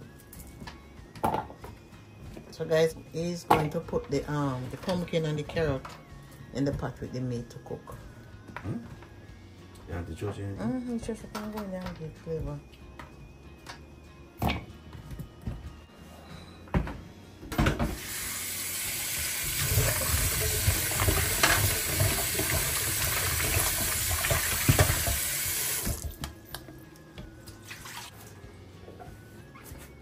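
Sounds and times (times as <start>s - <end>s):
tap water running into sink: 17.8s - 26.2s.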